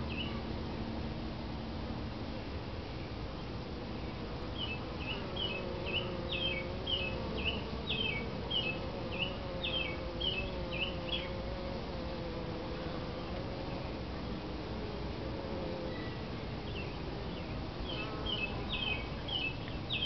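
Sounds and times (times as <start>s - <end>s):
honeybees humming: 0.0s - 20.0s
bird chirping: 0.1s - 0.4s, 4.6s - 11.4s, 15.9s - 20.0s.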